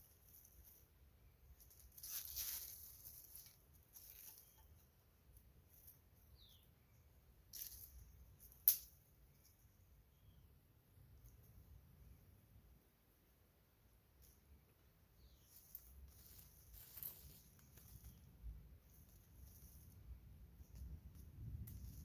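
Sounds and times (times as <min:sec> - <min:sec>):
twigs and leaves rustling: 0:00.0 - 0:06.7, 0:07.5 - 0:09.8, 0:15.2 - 0:22.0
stick snapping: 0:08.4 - 0:09.0.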